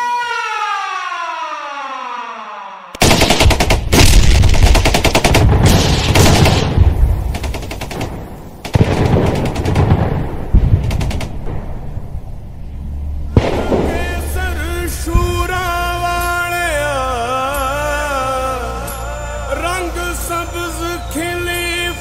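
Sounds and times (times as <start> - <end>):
machine-gun fire: 3.0 - 12.0, 13.4 - 14.6
single gunshots: 3.0 - 12.0, 13.3 - 14.3
explosions: 3.0 - 15.7.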